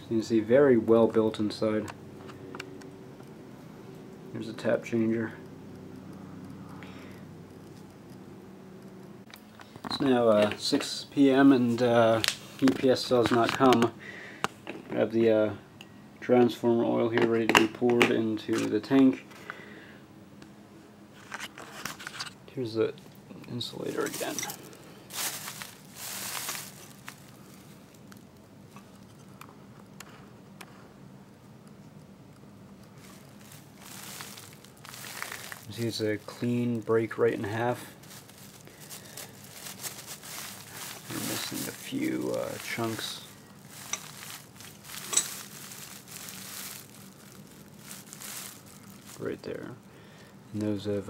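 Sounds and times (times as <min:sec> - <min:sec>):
plastic sheeting crinkling: 0:23.7 - 0:28.2, 0:32.9 - 0:49.6.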